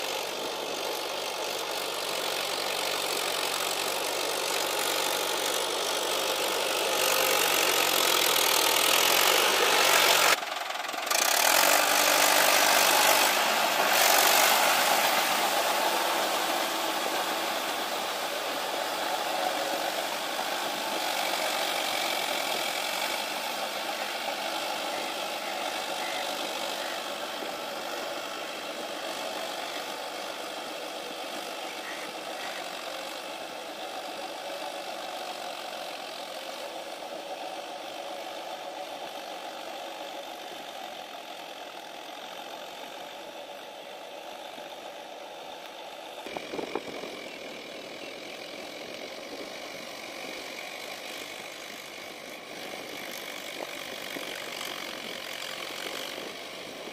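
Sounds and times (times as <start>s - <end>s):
rotavator churning mud: 0.0s - 40.1s
tractor diesel engine running: 0.0s - 56.9s.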